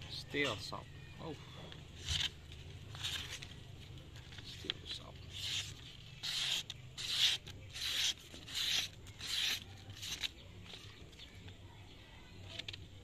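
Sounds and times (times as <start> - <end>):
blade cutting paper: 2.0 - 3.6, 4.4 - 10.9.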